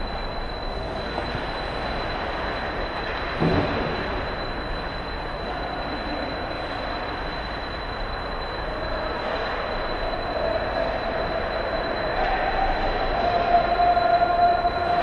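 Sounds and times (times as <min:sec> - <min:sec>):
arena noise: 0:08.6 - 0:15.0.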